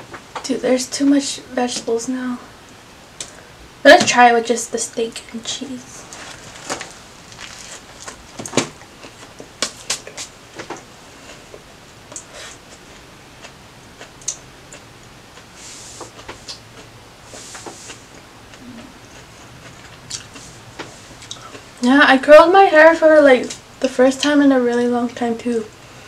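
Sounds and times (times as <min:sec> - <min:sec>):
sandwich crunching while chewed: 0:06.2 - 0:10.3.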